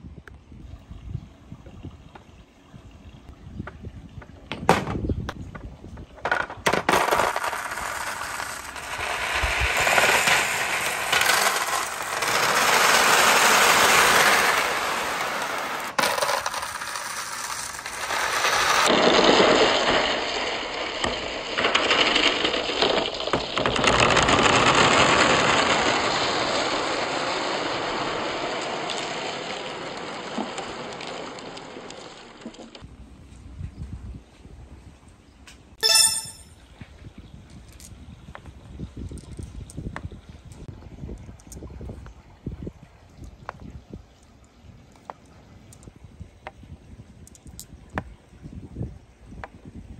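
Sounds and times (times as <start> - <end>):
glass marbles rolling and clinking: 6.2 - 27.0, 35.8 - 36.6.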